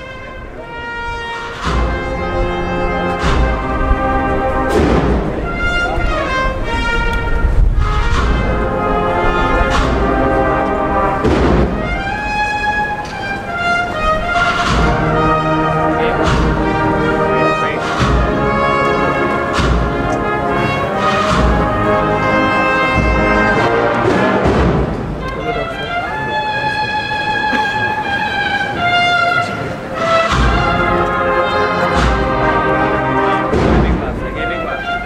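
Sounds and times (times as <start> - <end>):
brass chords: 0.0 - 35.0
drum strokes: 1.2 - 26.0, 26.7 - 35.0.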